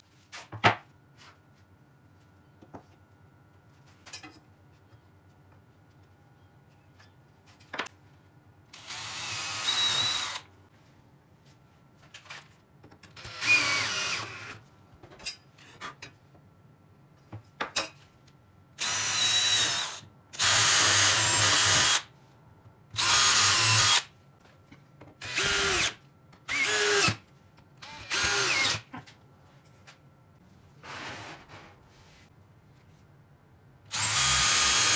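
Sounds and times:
power drill drilling into wood: 8.8 - 10.4, 13.2 - 14.6, 18.8 - 22.0, 23.0 - 24.0, 27.9 - 28.8, 33.9 - 34.9.

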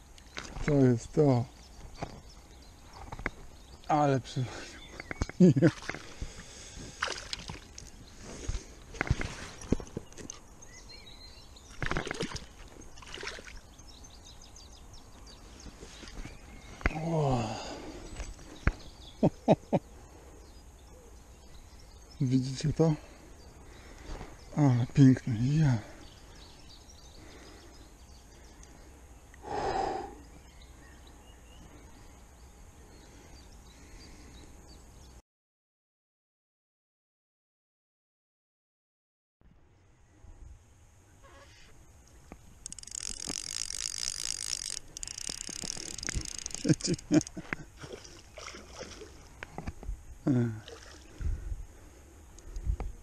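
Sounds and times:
faint outdoor background: 0.0 - 35.2, 39.4 - 53.0
rustling and knocks handling fish: 7.3 - 10.5
faint bird chirps: 41.1 - 41.8.

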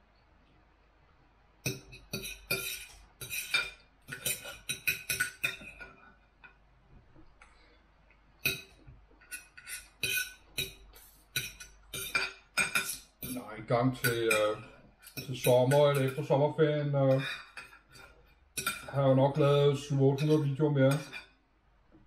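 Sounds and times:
knife and fork scraping plate: 1.7 - 6.0, 8.4 - 16.3, 17.1 - 18.9, 20.2 - 21.4.

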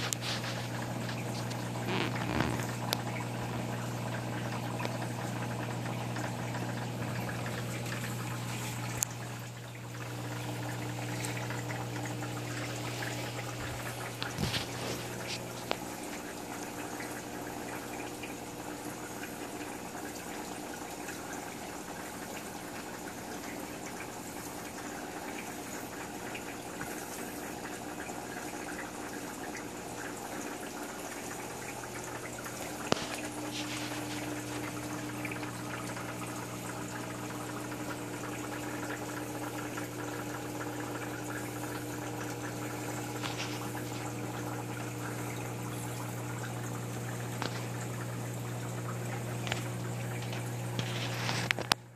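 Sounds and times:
pump hum: 0.0 - 51.9
water running and splashing: 0.0 - 51.9.

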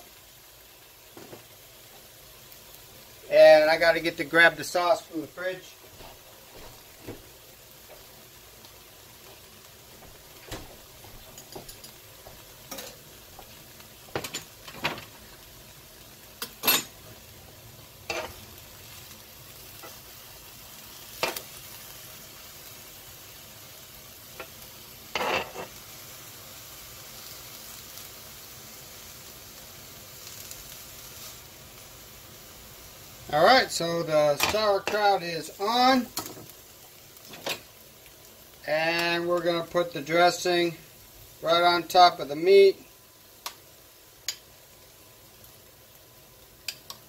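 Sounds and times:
food sizzling on griddle: 0.0 - 47.0
metal tongs scraping griddle: 18.1 - 18.4, 25.1 - 25.8.

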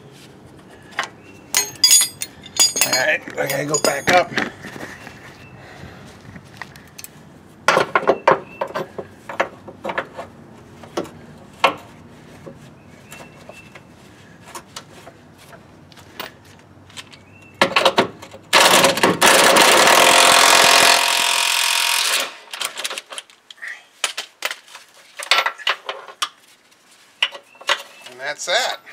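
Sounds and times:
metal clicks and knocks: 1.0 - 4.5
impact wrench hammering: 1.5 - 4.3.

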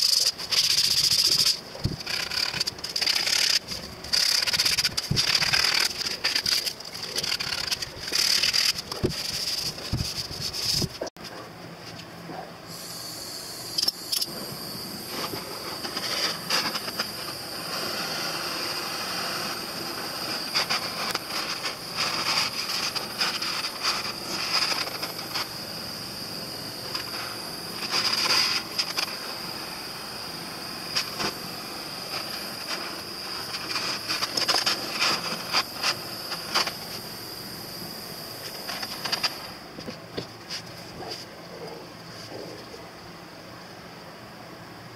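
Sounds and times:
gas torch hissing flame: 0.0 - 11.1, 12.6 - 41.3.

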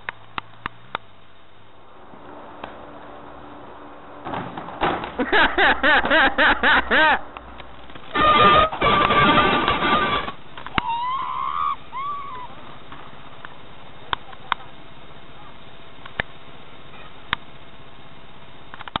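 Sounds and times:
steady low hiss: 0.0 - 19.0
distant voice calling: 10.7 - 12.8.

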